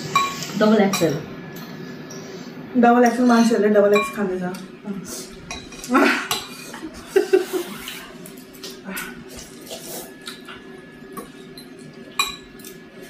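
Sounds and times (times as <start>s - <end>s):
noodles being slurped: 7.4s - 10.6s.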